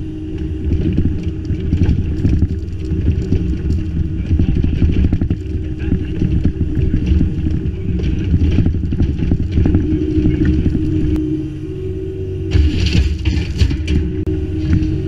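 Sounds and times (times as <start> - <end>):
diesel engine running: 0.0 - 15.0
bucket scraping stones: 0.6 - 11.1.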